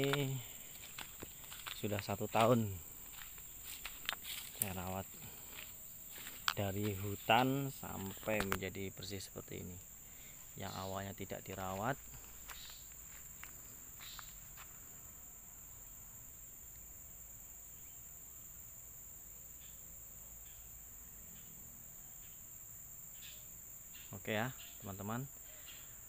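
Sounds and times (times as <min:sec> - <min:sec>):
faint rustles: 0:00.0 - 0:08.9
insect chorus drone: 0:00.0 - 0:26.0.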